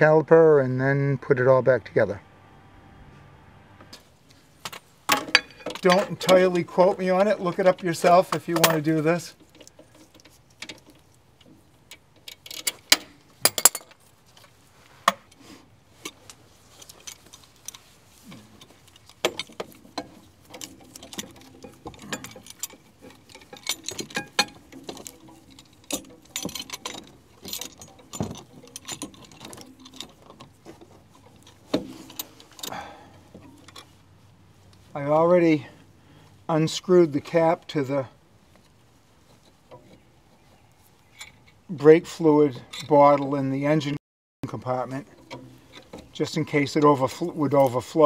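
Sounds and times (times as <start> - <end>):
hand tools clicking on metal: 7.5 - 14.0, 16.1 - 33.9.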